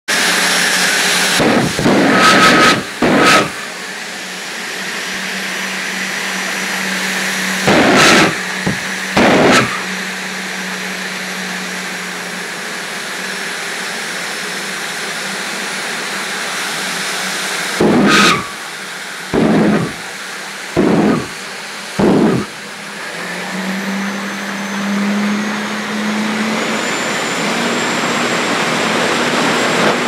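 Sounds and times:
turbine engine running: 0.1 - 30.0
loud afterburner blasts: 0.7 - 4.0, 7.2 - 10.3, 17.6 - 22.9.

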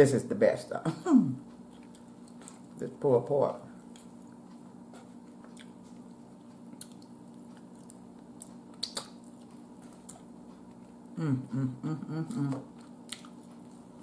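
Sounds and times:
low steady hum: 0.0 - 14.0
person chewing: 1.5 - 2.8, 3.8 - 14.0.

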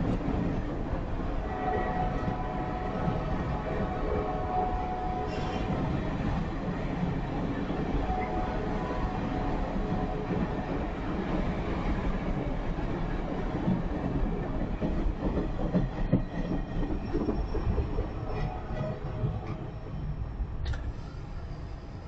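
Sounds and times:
train wheels rolling on track: 0.0 - 22.0.

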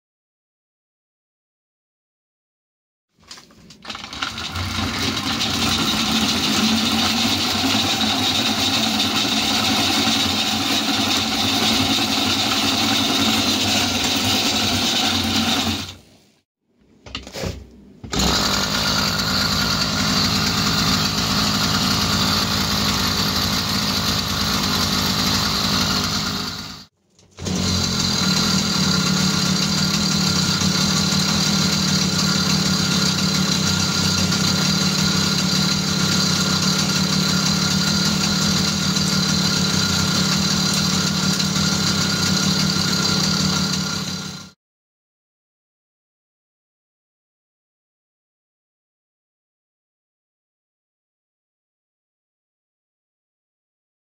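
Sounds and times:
two-stroke engine running: 3.8 - 16.0, 18.1 - 44.6.

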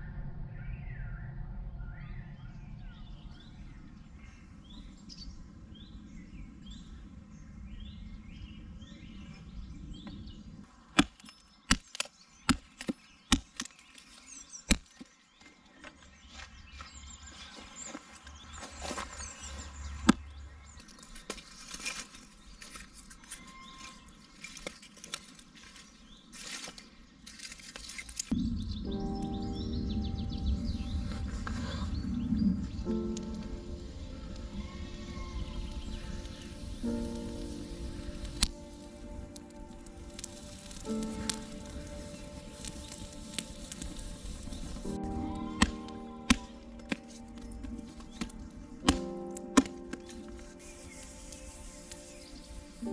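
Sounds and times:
birds chirping: 0.4 - 52.9
wood and grass rustling: 10.0 - 28.5, 30.4 - 52.9
low outdoor rumble: 28.3 - 48.9
hatchet chopping kindling: 48.2 - 50.1.

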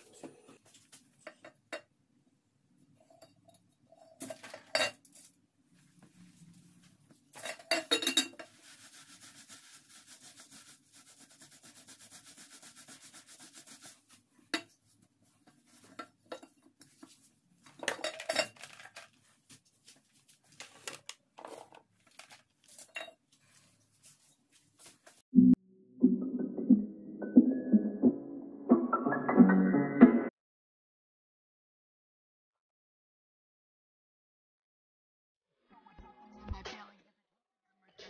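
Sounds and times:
cloth wiping tiled countertop: 5.7 - 17.7, 19.2 - 20.7, 22.6 - 25.2
plastic items clacking on tiles: 17.7 - 19.3, 20.5 - 23.0.

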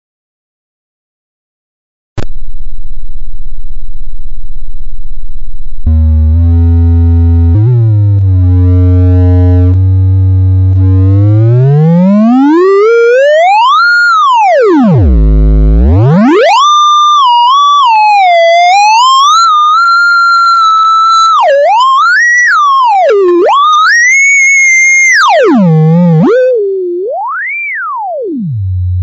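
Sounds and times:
synthesized tone sliding in pitch: 5.2 - 18.0, 18.6 - 29.0.

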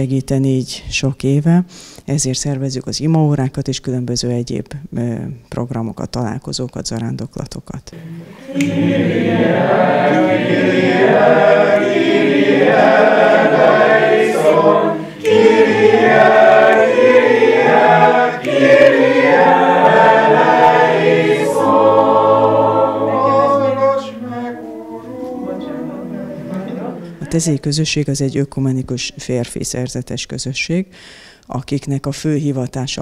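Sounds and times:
group of voices singing a chant: 8.0 - 27.6.

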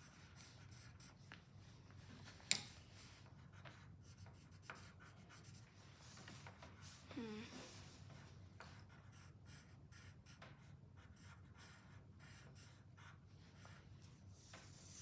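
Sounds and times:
pencil scratching on paper: 0.0 - 1.4, 3.0 - 15.0.

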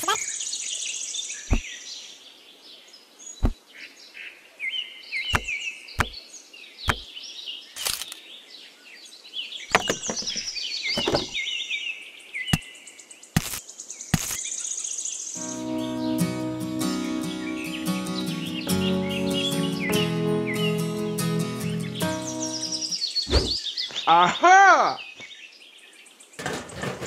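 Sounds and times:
birds chirping: 1.4 - 1.8, 5.2 - 8.2, 9.6 - 11.6, 15.4 - 25.3
model pieces clicking and knocking: 5.4 - 6.2, 9.7 - 11.4.

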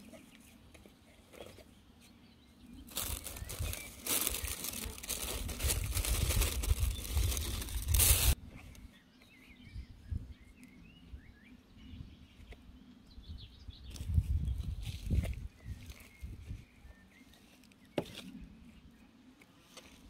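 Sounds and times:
small birds chirping: 0.0 - 19.8
soil rustling into plastic pot: 2.8 - 8.4
plastic bag crinkling: 2.9 - 8.4.

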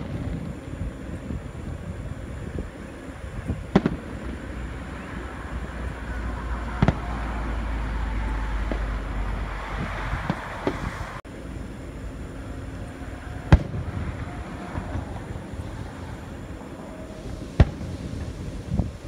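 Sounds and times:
steady low rumble: 0.0 - 19.0
firework shells bursting: 2.5 - 7.7, 12.6 - 19.0.

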